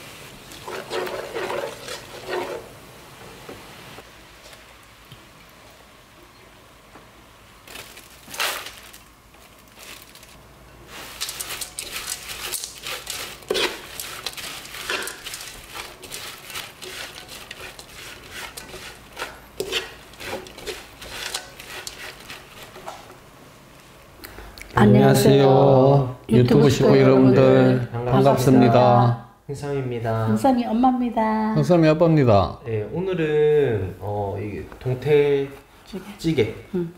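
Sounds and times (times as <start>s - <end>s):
dried fish rattling in a wok: 7.7s - 22.9s.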